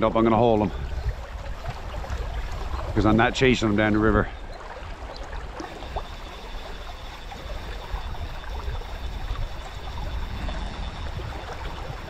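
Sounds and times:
river current flowing over rocks: 0.1s - 12.0s.

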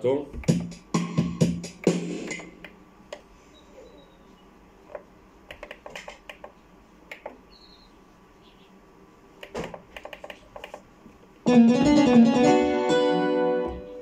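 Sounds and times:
electronic keyboard notes: 11.5s - 14.0s.

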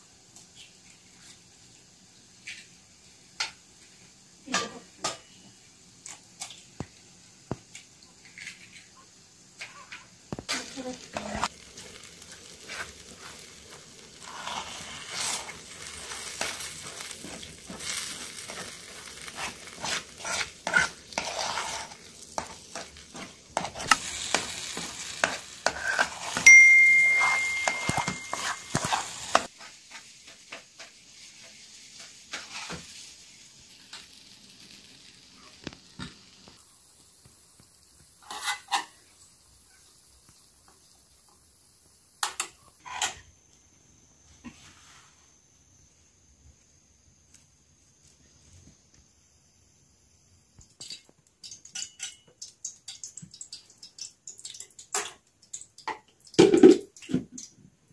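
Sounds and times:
food sizzling: 0.0s - 57.9s
metal spoon scraping frying pan: 9.6s - 30.0s, 32.0s - 32.8s, 38.2s - 39.0s, 42.2s - 43.3s
metal clinking on metal: 26.4s - 28.8s
steady high tone: 26.4s - 28.8s.

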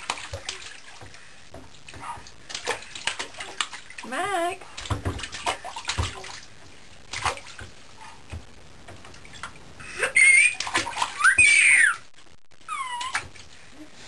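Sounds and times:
bath water splashing: 0.0s - 12.1s
baby squealing: 9.9s - 12.0s, 12.7s - 13.2s.

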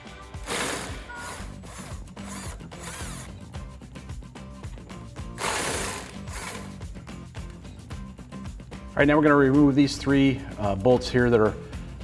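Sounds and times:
background music: 0.0s - 12.0s
impact wrench bursts: 0.4s - 3.4s, 5.4s - 6.8s.

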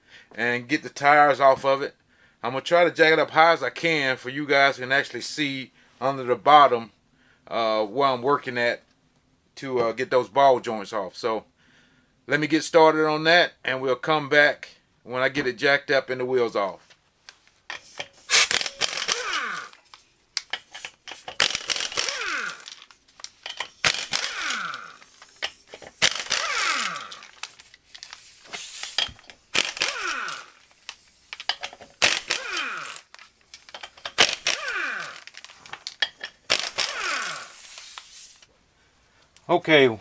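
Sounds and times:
air impact wrench bursts: 17.7s - 38.5s.

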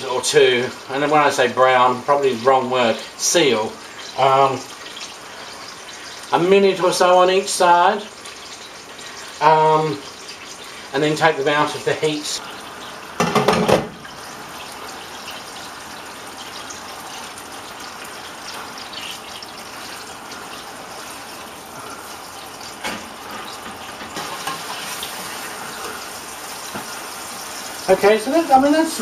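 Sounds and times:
chicken sizzling in oil: 0.0s - 29.0s
fork knocking on pan: 13.2s - 14.0s.

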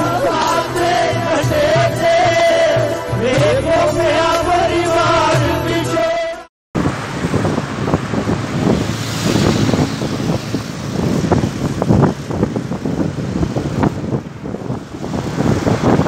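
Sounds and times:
road and engine noise: 0.0s - 16.0s
wind buffeting microphone: 6.8s - 16.0s.

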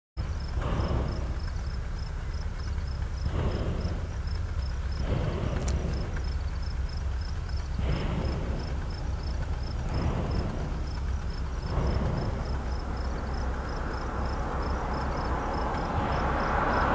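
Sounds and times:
cricket chirping: 0.2s - 16.9s
low rumble: 0.2s - 16.9s
rushing noise: 0.3s - 16.9s.

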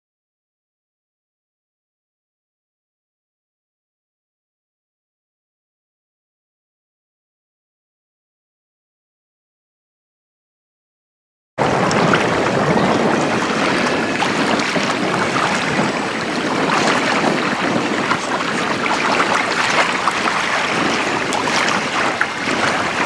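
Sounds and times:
wind buffeting microphone: 11.6s - 23.0s.

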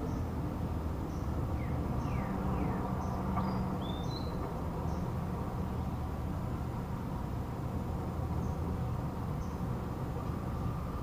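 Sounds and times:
faint high bird chirp: 1.1s - 5.1s.

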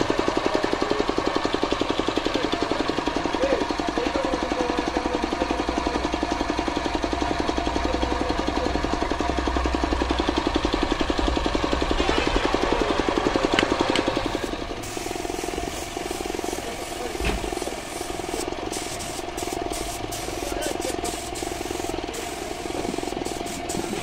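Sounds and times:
air compressor thumping: 10.4s - 24.0s.

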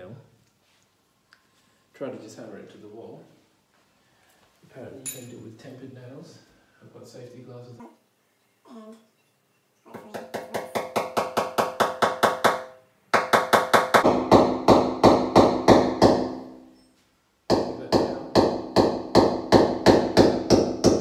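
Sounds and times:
hammer striking metal nail: 10.2s - 16.8s, 17.5s - 21.0s.

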